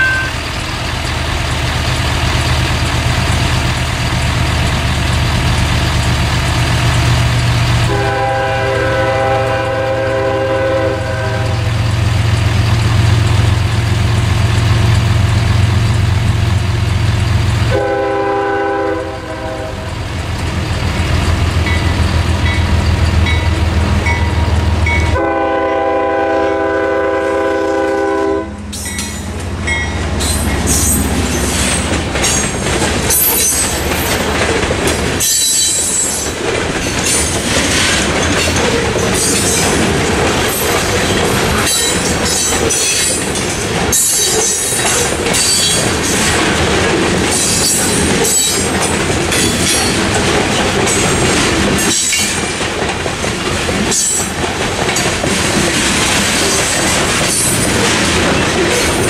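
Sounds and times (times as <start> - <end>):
locomotive horn blasts: 0.0 - 0.4, 7.8 - 11.8, 17.7 - 20.0, 25.0 - 28.7
train wheels clattering over rails: 0.0 - 27.9, 28.6 - 59.0.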